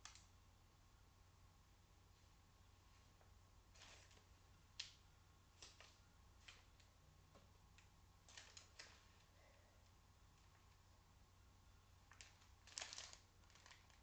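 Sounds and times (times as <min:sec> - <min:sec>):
low steady hum: 0:00.0 - 0:14.0
paper and parcel rustling clicks: 0:08.2 - 0:09.3, 0:12.1 - 0:14.0.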